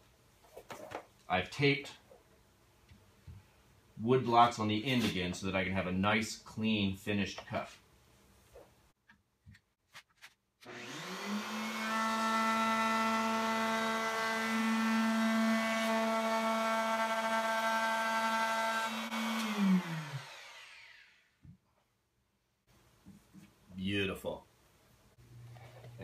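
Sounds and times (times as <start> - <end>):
router motor whining: 10.6 - 21.3.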